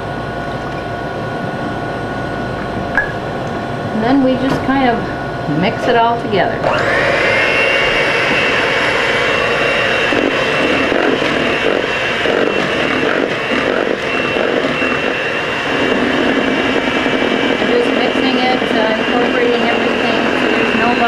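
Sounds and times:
electric hand mixer whining: 0:05.8 - 0:21.0.

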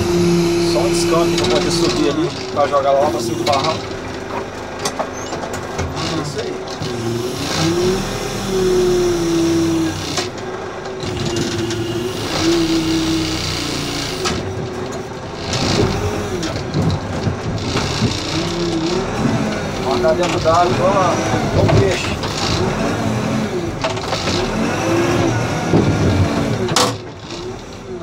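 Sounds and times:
diesel engine running under load: 0:00.0 - 0:28.0.

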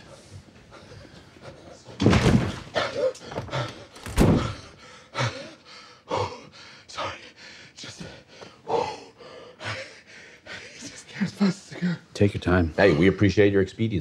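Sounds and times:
man breathing hard and gasping: 0:03.3 - 0:10.9.

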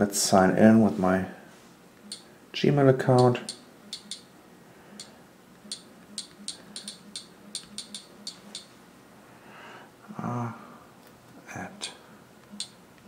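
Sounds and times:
touchscreen key clicks: 0:05.7 - 0:08.7.

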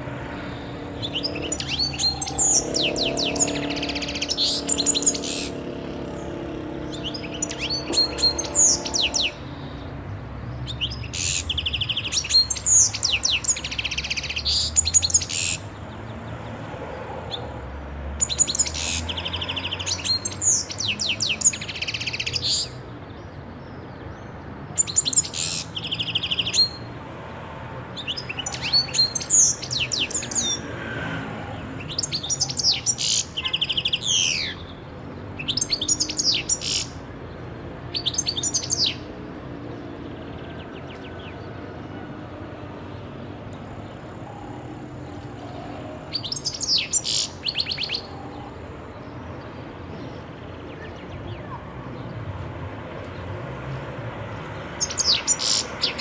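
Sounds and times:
goldfinch twittering song: 0:00.4 - 0:09.8.

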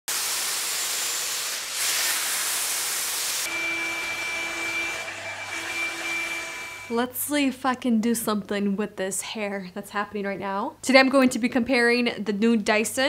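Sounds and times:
hair styler blowing air: 0:00.1 - 0:07.0.

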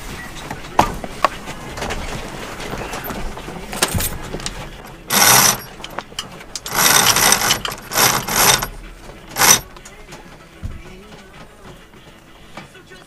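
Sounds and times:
winch ratcheting: 0:03.7 - 0:10.4.

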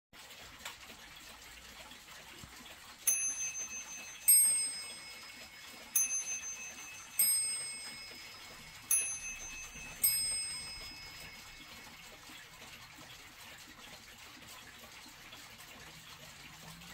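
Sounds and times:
mantel clock striking gongs: 0:03.1 - 0:12.2.

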